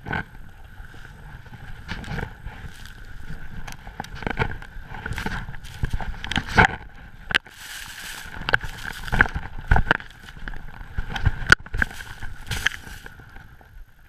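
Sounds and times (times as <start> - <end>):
skis hissing through snow: 0.8 - 3.6, 4.9 - 6.6, 7.4 - 10.5, 11.8 - 13.2
ski knocks and thumps: 1.4 - 13.2.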